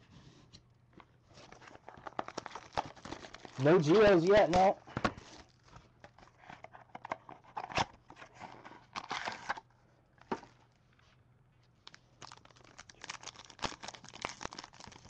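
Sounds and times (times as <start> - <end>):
foil wrapper crinkling: 1.4 - 5.7, 11.8 - 15.0.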